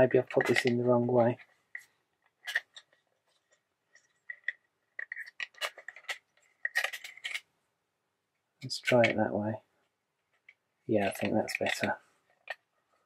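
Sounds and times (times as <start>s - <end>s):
plastic parts clicking and tapping: 0.2s - 7.5s, 10.3s - 12.7s.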